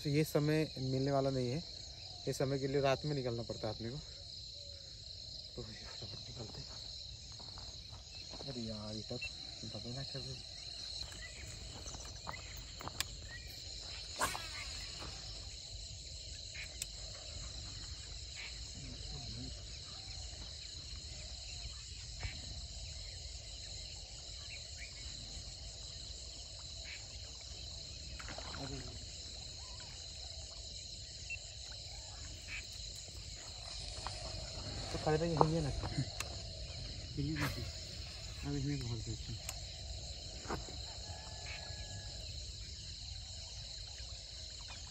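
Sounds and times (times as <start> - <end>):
insect chorus trilling: 0.0 - 44.9.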